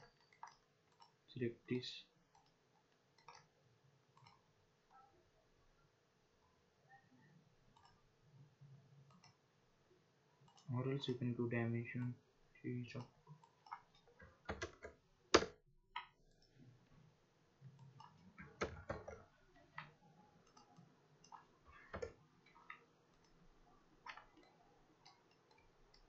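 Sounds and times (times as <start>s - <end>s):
keyboard and mouse clicks: 0.0s - 1.2s, 2.3s - 3.5s, 4.1s - 5.0s, 7.7s - 8.0s, 9.1s - 9.4s, 12.9s - 16.6s, 17.7s - 23.4s, 24.0s - 26.0s.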